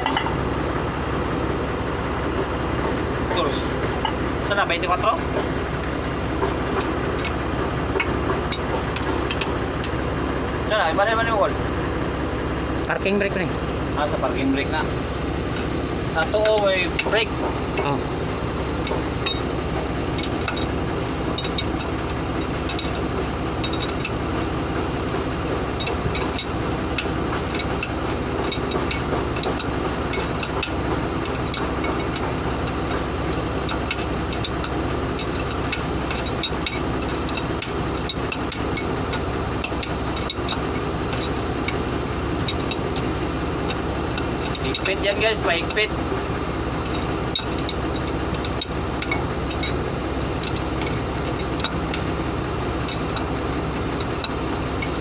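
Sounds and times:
truck engine idling: 0:00.0 - 0:55.0
wrench clinking on metal: 0:18.8 - 0:19.5, 0:20.1 - 0:24.2, 0:25.7 - 0:45.9, 0:46.8 - 0:52.2, 0:52.8 - 0:55.0.

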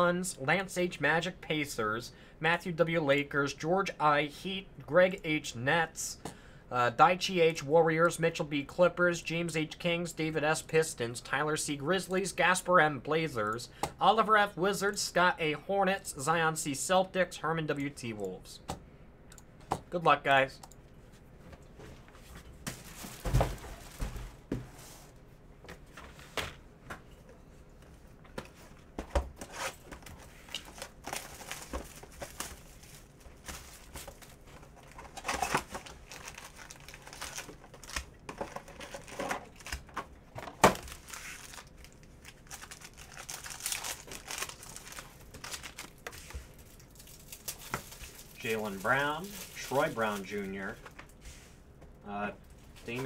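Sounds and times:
wrapping crinkling and tearing: 0:29.5 - 0:40.0, 0:40.8 - 0:50.8.

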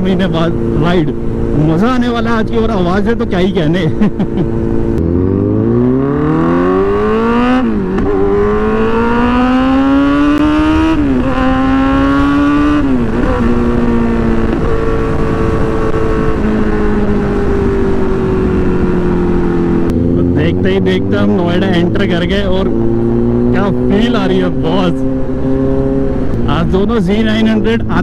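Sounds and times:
motorcycle engine accelerating: 0:00.0 - 0:28.0
wind on microphone: 0:06.4 - 0:19.9.

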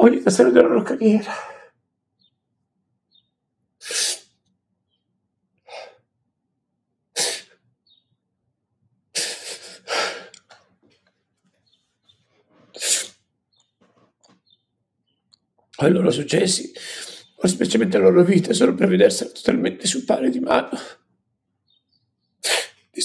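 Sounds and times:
person breathing and sniffing: 0:03.8 - 0:04.3, 0:05.7 - 0:06.0, 0:07.2 - 0:07.6, 0:09.2 - 0:10.4, 0:12.5 - 0:13.2, 0:16.8 - 0:17.4, 0:22.4 - 0:22.8.

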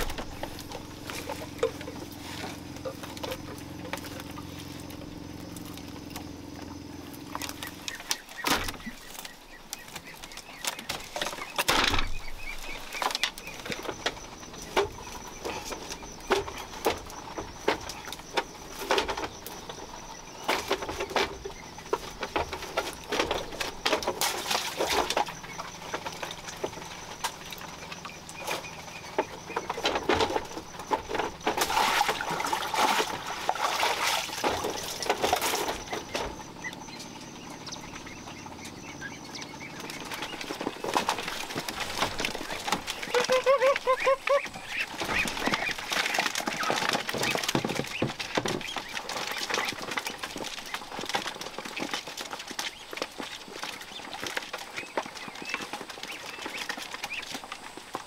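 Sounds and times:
hands rustling and scraping net: 0:00.0 - 0:06.0, 0:07.1 - 0:36.5, 0:39.9 - 0:58.0
steady low hum: 0:00.0 - 0:43.2.

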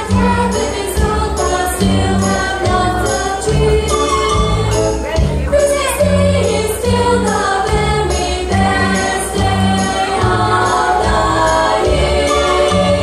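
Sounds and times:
children singing: 0:00.0 - 0:04.7, 0:05.5 - 0:13.0
instrumental backing with bass line: 0:00.0 - 0:13.0.

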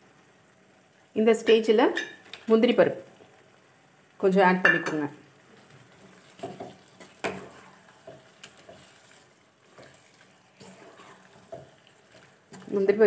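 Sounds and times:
faint sizzling: 0:00.0 - 0:13.0
spatula scraping pan: 0:05.6 - 0:13.0
spatula tapping pan: 0:06.0 - 0:13.0.

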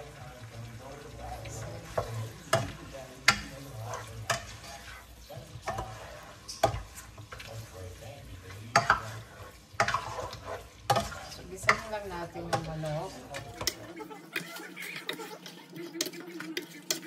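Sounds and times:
light sizzle: 0:00.0 - 0:17.0
spoon scraping a pot: 0:00.8 - 0:17.0.

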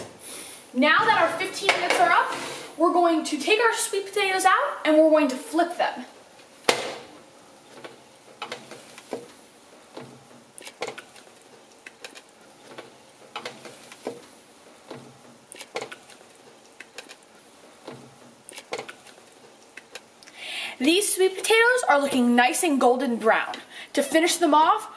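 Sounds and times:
metal spatula scraping baking sheet: 0:01.0 - 0:03.0.

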